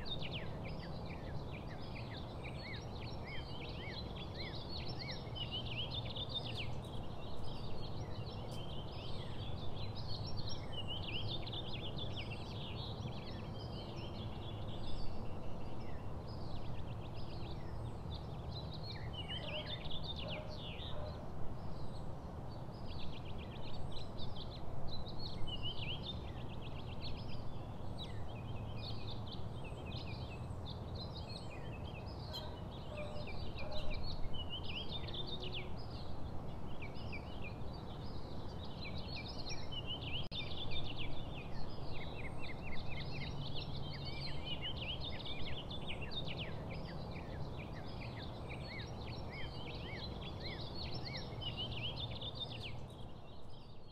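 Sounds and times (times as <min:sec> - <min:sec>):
small birds chirping and trilling: 0:00.0 - 0:53.9.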